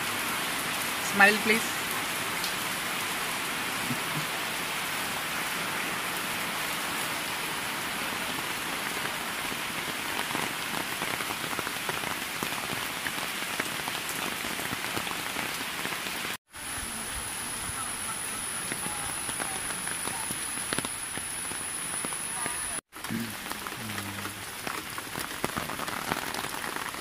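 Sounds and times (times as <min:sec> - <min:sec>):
heavy rain falling: 0:00.0 - 0:27.0
close raindrop hits: 0:17.2 - 0:27.0.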